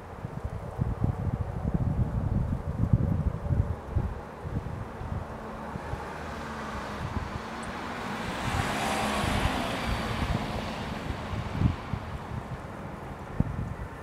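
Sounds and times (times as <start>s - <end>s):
wind buffeting microphone: 0.0s - 14.0s
vehicle passing: 4.5s - 14.0s.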